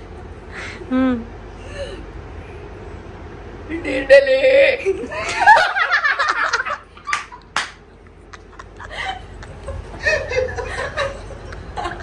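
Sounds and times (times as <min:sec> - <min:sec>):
boy and woman laughing: 0:04.6 - 0:07.5, 0:08.1 - 0:12.0.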